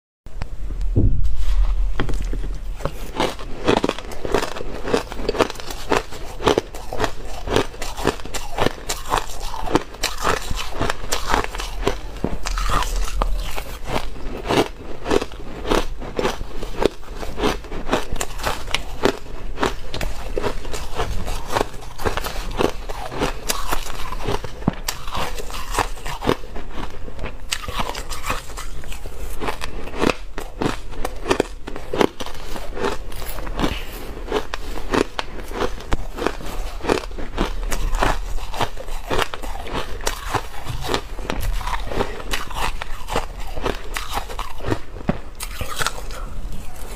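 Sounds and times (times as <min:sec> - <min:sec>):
chewing crushed ice: 0:02.2 - 0:46.9.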